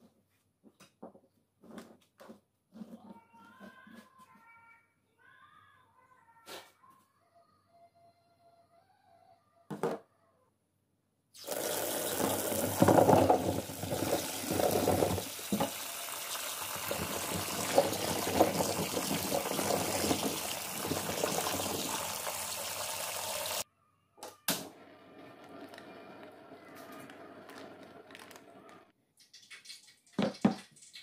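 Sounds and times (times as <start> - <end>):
tap water splashing into wok: 11.4 - 23.6.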